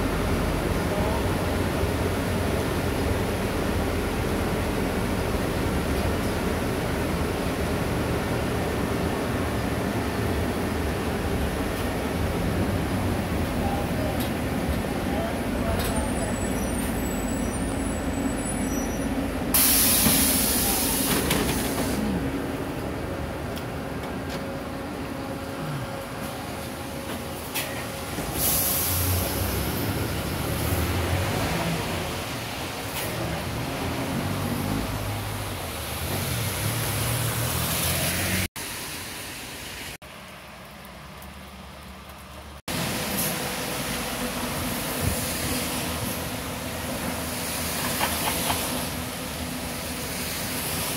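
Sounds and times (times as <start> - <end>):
rain hiss: 0.0 - 23.4, 25.8 - 50.9
tyres hissing on wet asphalt: 0.0 - 23.8, 24.9 - 50.9
bus hum: 0.0 - 50.9
passing traffic engine rumble: 0.0 - 50.9
pneumatic doors hissing: 15.8 - 22.2, 27.5 - 30.8.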